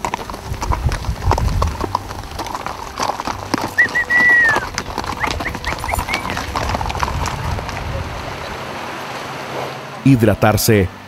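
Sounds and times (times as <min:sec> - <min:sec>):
hooves clopping on gravel: 0:00.0 - 0:10.9
person whistling: 0:03.7 - 0:06.4
short rising whistles: 0:03.8 - 0:06.4.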